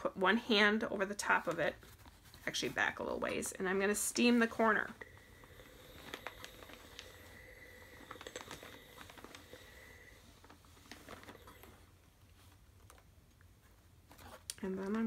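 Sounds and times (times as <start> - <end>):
steam iron hissing: 4.6 - 10.4
small clicks and spits: 5.9 - 9.8.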